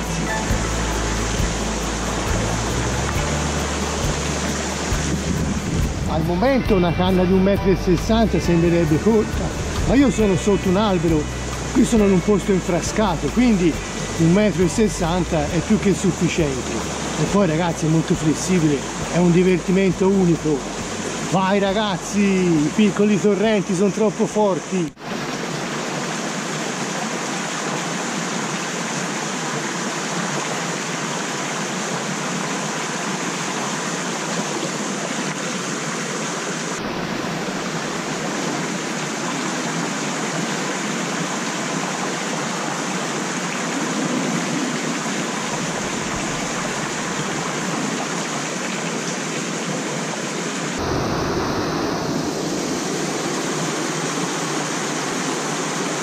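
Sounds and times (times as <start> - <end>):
low rumble: 0.0 - 7.1
stream water rushing: 0.0 - 56.0.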